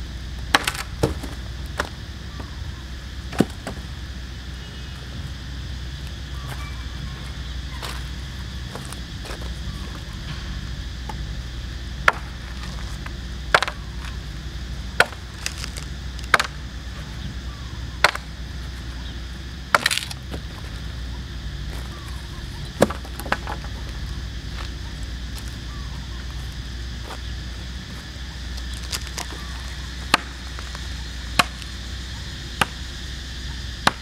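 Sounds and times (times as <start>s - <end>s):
machete chopping wood: 0.5s - 1.9s, 15.0s - 16.6s, 18.0s - 18.3s, 19.7s - 20.1s, 30.1s - 30.4s, 31.3s - 31.7s.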